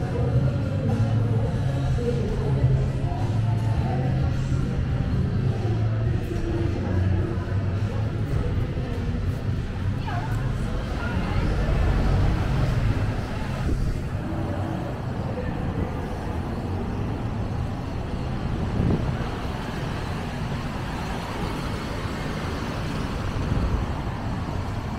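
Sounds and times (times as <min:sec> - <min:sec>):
traffic passing on wet road: 0:10.4 - 0:24.9.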